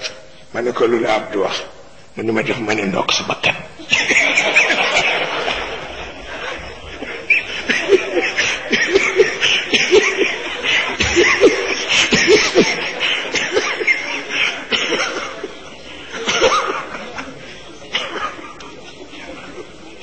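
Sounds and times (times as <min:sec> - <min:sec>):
crowd laughing: 0:03.7 - 0:20.0.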